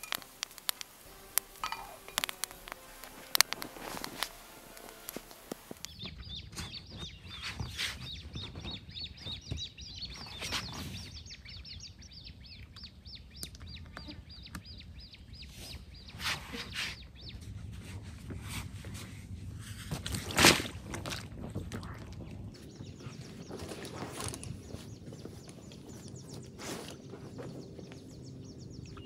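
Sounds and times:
birds chirping: 0.0s - 19.4s, 20.7s - 29.0s
kayak knocks and rustles: 1.3s - 11.2s, 17.8s - 28.1s.

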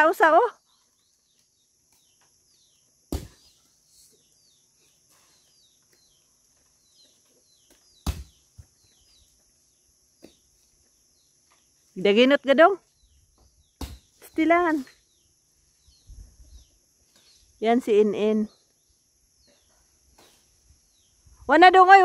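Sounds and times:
small bird chirps: 0.2s - 12.1s.

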